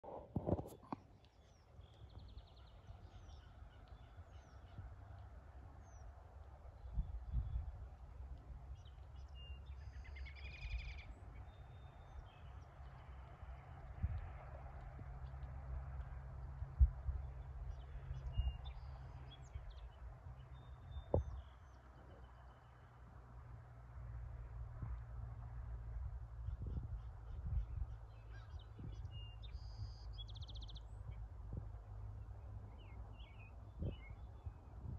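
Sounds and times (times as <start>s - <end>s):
birds chirping: 0.0s - 13.9s, 15.3s - 22.9s, 26.3s - 34.9s
wind rumble on microphone: 0.0s - 34.9s
bird chirps: 8.7s - 13.3s, 26.4s - 31.3s, 32.7s - 34.8s
bird trill: 9.4s - 12.5s.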